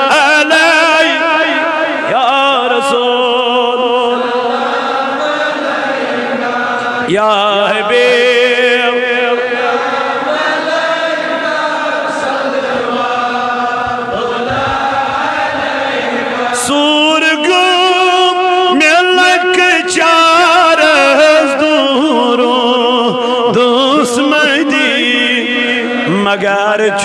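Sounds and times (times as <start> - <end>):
man chanting with vibrato: 0.0 - 27.0
several voices chanting: 3.6 - 18.1.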